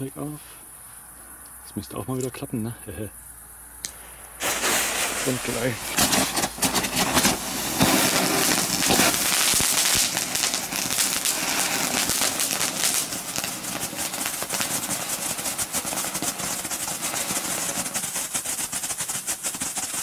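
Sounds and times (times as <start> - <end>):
firework fountain hissing: 3.8 - 20.0
fireworks crackling with small pops: 3.8 - 20.0.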